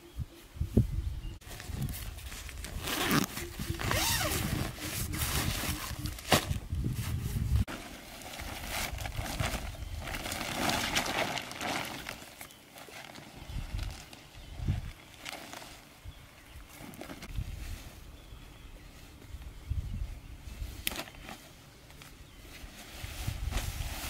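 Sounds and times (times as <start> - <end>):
tent bag being unzipped: 1.4 - 14.2
plastic tarp rustling: 1.4 - 16.0, 22.4 - 24.0.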